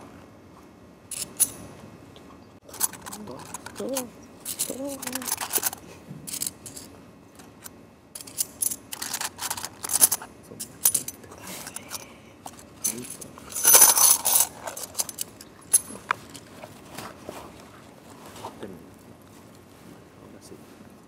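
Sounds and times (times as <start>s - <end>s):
coins clinking: 1.1s - 1.6s, 2.7s - 16.5s.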